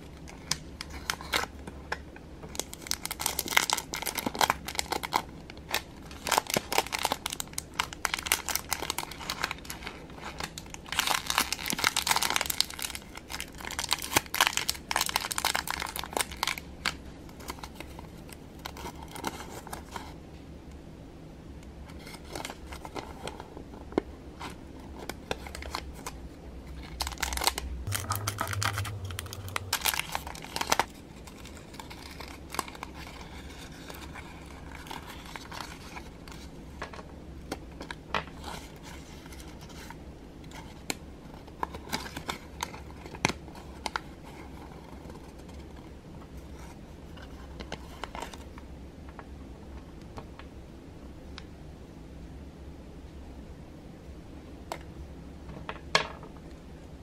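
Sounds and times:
paper wrapper crinkling: 2.6 - 17.9, 25.0 - 28.3.

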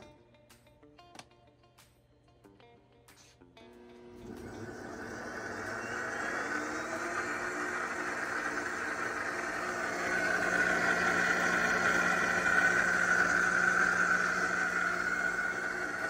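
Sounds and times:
blender motor whirring: 3.6 - 16.0.

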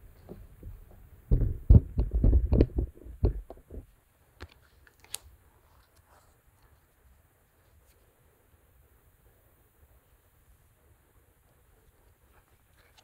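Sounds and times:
phone microphone handling thumps: 0.2 - 3.9.

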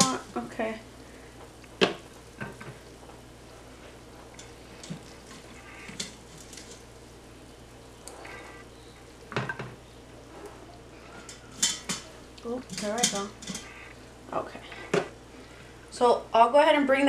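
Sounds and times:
faint sizzle: 0.0 - 17.0
metal tongs scraping a pot: 4.2 - 7.0, 8.2 - 9.2, 10.4 - 14.0.

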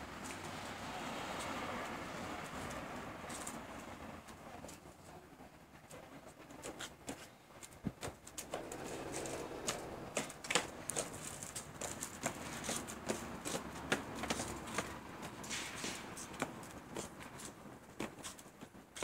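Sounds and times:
roller skates clattering on pavement: 7.1 - 19.0.

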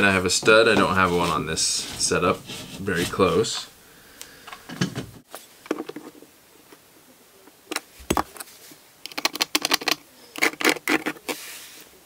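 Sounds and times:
pencil scratching on wall: 0.4 - 3.6.

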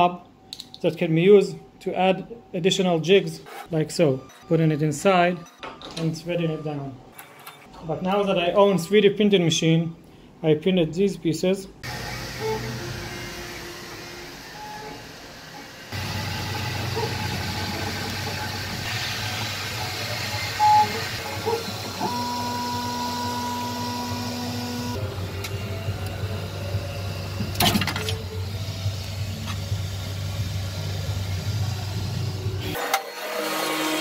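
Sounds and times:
printer fans and motors humming: 11.8 - 34.0
steady motor tones: 11.8 - 34.0.

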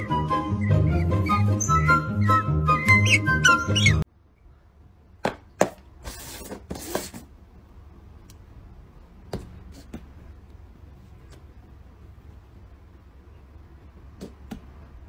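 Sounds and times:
background music: 0.0 - 4.0.

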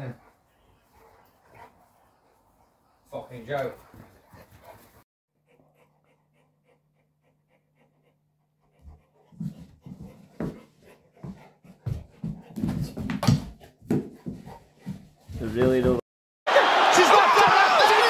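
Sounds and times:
dog panting: 0.0 - 15.4.

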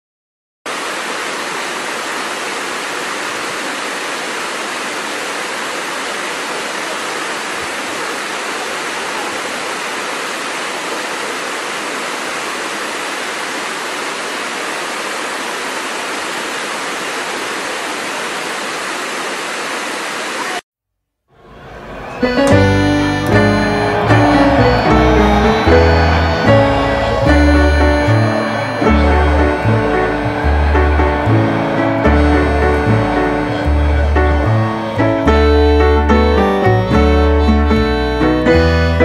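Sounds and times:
waterfall cascading over rocks: 0.7 - 20.6.

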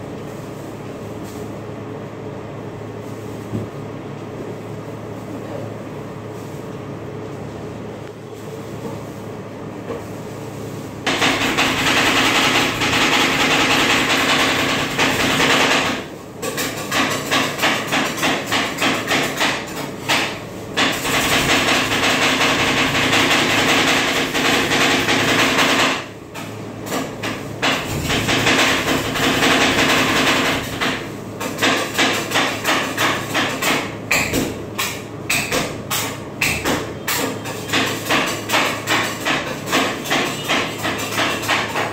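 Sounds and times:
spatulas chopping on steel plate: 31.5 - 41.9.

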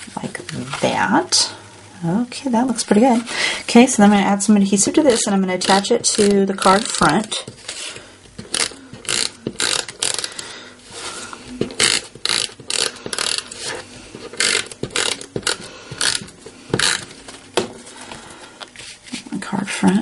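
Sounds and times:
tape runner ratcheting rattle: 8.4 - 10.4, 11.8 - 13.5, 14.3 - 17.0.

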